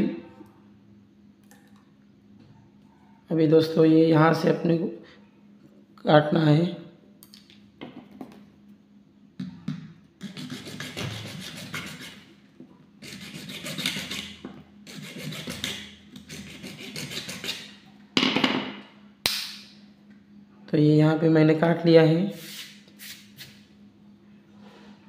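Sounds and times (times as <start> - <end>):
hacksaw sawing plastic: 10.2 - 12.2, 13.0 - 14.3, 14.9 - 17.7.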